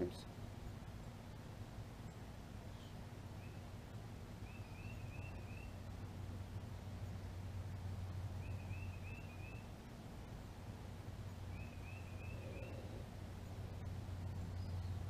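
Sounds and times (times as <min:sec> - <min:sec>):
steady low hum: 0:00.0 - 0:15.0
bird chirping: 0:02.0 - 0:03.7, 0:04.4 - 0:05.8, 0:08.4 - 0:09.7, 0:11.5 - 0:13.1, 0:13.8 - 0:15.0.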